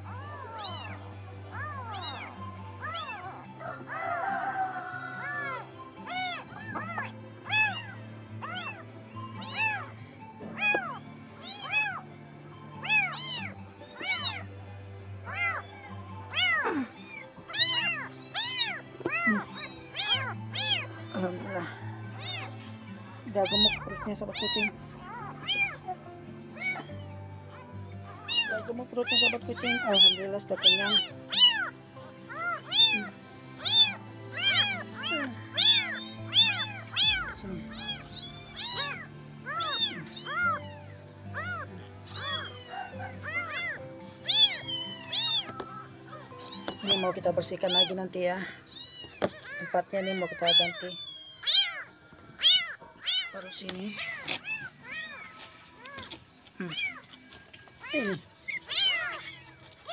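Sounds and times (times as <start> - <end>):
kittens mewing: 0.0 - 12.1, 12.8 - 14.6, 15.2 - 57.2, 57.8 - 59.9
soft background music: 0.0 - 59.9
kitten mewing: 5.2 - 8.8, 9.4 - 9.9, 15.3 - 15.6, 16.3 - 21.5, 23.4 - 26.0, 28.2 - 31.7, 32.3 - 40.8, 41.4 - 45.6.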